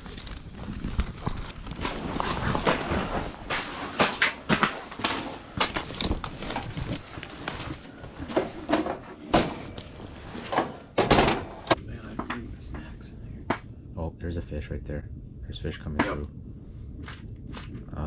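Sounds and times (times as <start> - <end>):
fishing gear knocks and clunks: 4.0 - 9.5.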